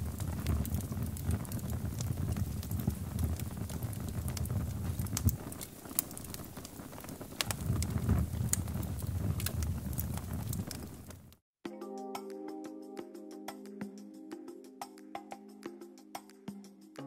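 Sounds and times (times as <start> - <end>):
campfire crackling and popping: 0.0 - 11.4
low rumble of flames: 0.0 - 11.4.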